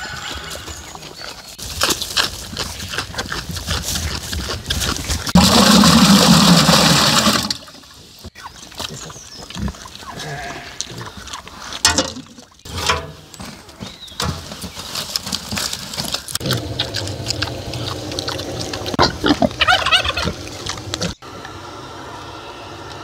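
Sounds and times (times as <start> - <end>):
pig munching cabbage: 0.0 - 11.8, 15.0 - 21.2
knocks loading metal stove: 11.8 - 13.2.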